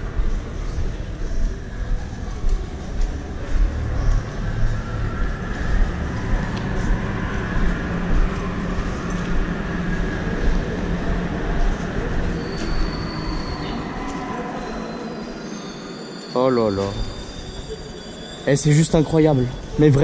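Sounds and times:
high wheel squeal: 12.1s - 20.0s.

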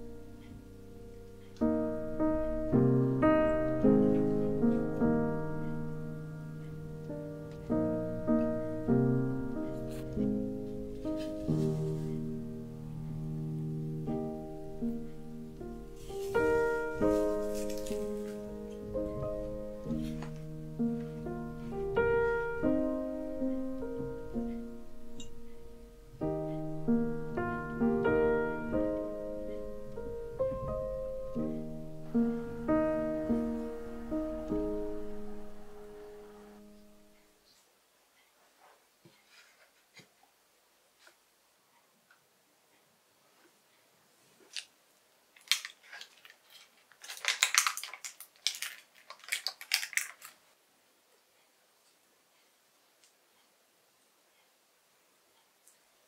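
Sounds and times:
piano piece: 0.0s - 37.4s
parchment paper crinkling: 15.9s - 18.8s, 44.4s - 50.6s.

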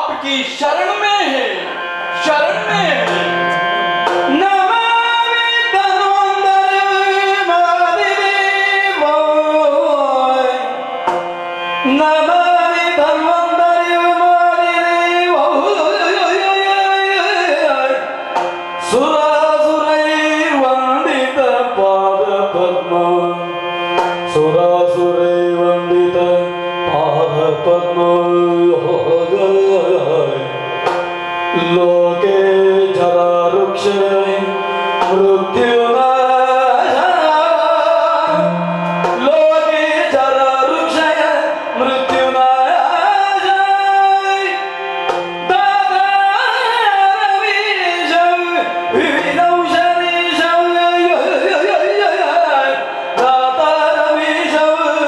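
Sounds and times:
steady drone: 1.6s - 5.0s, 38.3s - 40.2s
drum strokes: 2.7s - 4.5s, 38.3s - 39.6s
person singing melismatic line: 38.3s - 40.0s.

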